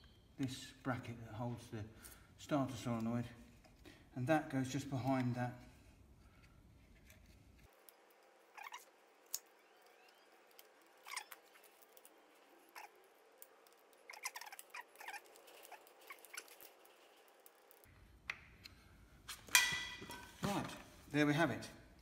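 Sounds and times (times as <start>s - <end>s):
hands working wires: 4.7s - 21.2s.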